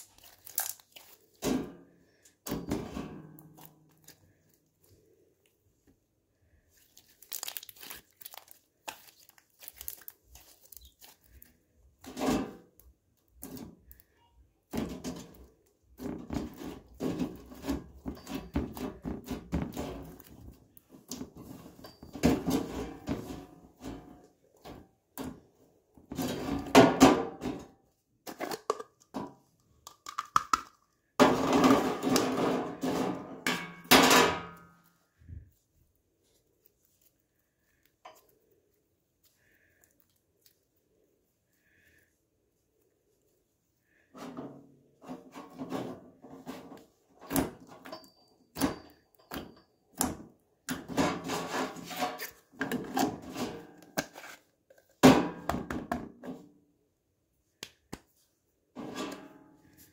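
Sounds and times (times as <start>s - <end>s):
slime squelching and popping: 0.0s - 1.4s, 6.8s - 11.5s.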